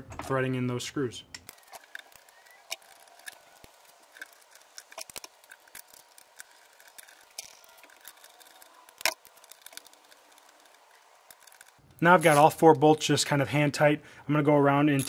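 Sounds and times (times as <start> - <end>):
metal clicks of bolts threading: 1.4 - 12.6.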